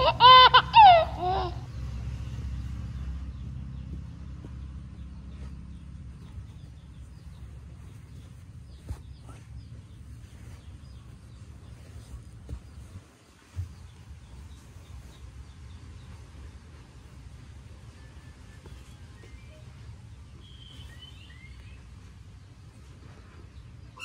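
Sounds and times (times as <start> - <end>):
person laughing: 0.0 - 1.7
steady low hum: 0.0 - 24.0
cats wrestling on bedding: 2.0 - 21.2.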